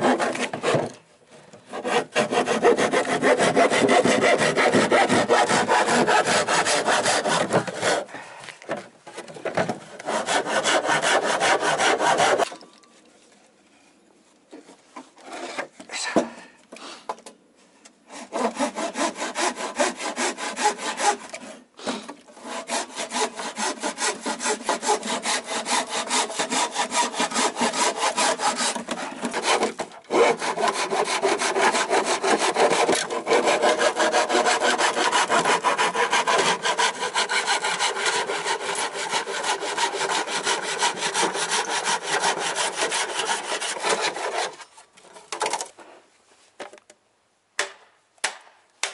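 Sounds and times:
hand saw cutting wood: 0:00.0 - 0:01.0, 0:01.6 - 0:08.1, 0:08.7 - 0:12.6, 0:18.1 - 0:45.6.

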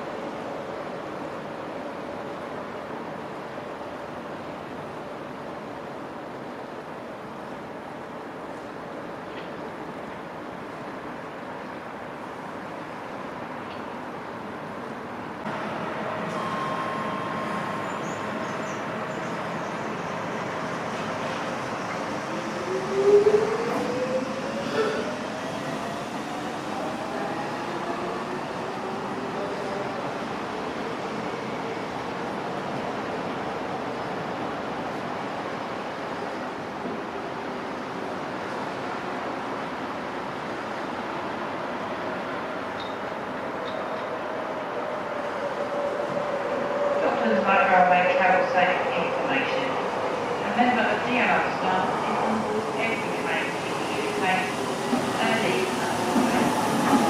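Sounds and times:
wind: 0:00.0 - 0:57.0
train running away: 0:15.5 - 0:37.4, 0:38.4 - 0:57.0
wheels rumbling on rail: 0:42.2 - 0:57.0.

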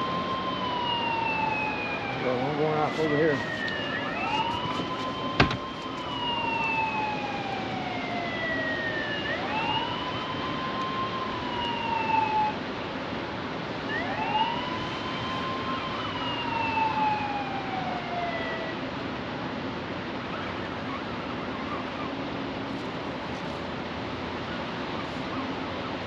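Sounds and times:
siren wailing: 0:00.0 - 0:19.0.

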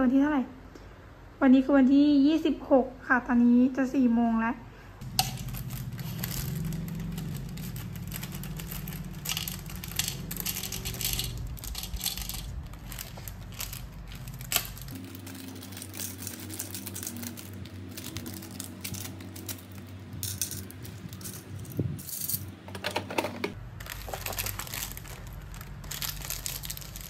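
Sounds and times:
plastic bags crinkling: 0:05.0 - 0:21.6, 0:22.9 - 0:27.0
charms clicking on plastic box: 0:05.0 - 0:27.0.

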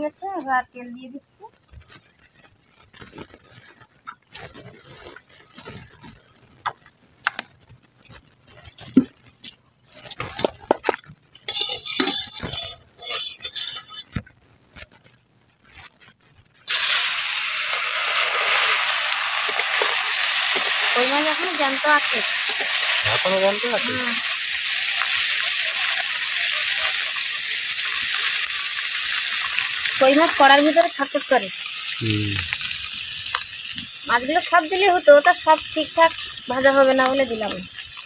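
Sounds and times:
fish frying in hot oil: 0:01.1 - 0:38.0
metal pots and utensils clinking: 0:10.8 - 0:14.1
short hissing: 0:31.6 - 0:33.2.

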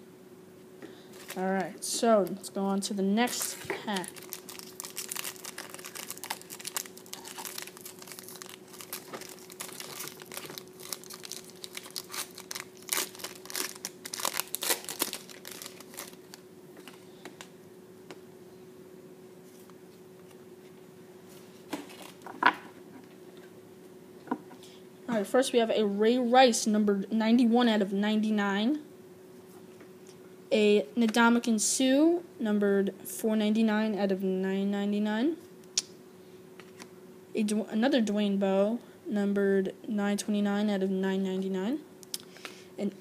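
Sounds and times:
foil wrapper crinkling: 0:03.3 - 0:17.0.

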